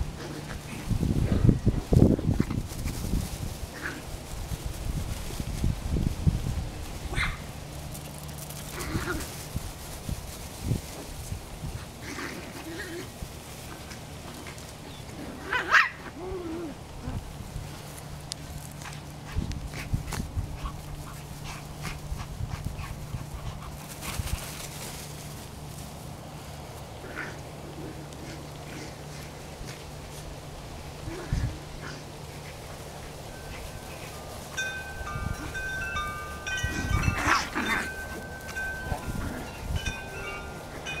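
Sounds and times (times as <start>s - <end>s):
dogs yipping and whimpering: 14.9s - 16.8s, 35.3s - 41.0s
chimes ringing: 33.2s - 41.0s.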